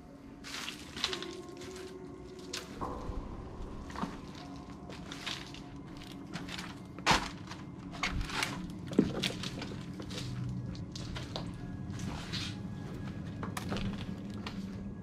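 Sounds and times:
footsteps crunching over debris: 0:00.3 - 0:15.0.

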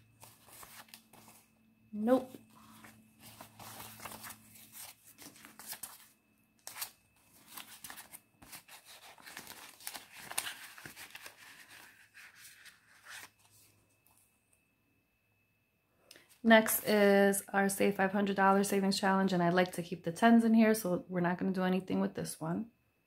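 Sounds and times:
plastic pouch crinkling: 0:00.0 - 0:01.4, 0:02.1 - 0:13.6
banknotes rustling as counted: 0:00.0 - 0:13.8.

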